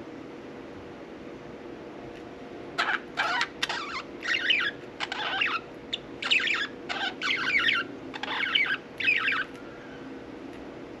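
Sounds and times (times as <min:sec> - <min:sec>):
faint steady hum: 0:00.0 - 0:11.0
budgerigars chattering: 0:02.8 - 0:09.5.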